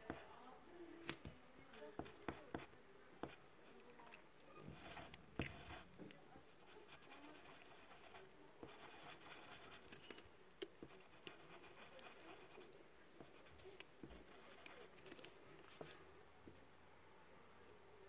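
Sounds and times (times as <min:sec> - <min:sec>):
pen scratching on paper: 0:01.7 - 0:03.4, 0:04.6 - 0:05.9, 0:06.5 - 0:10.1, 0:10.8 - 0:16.0.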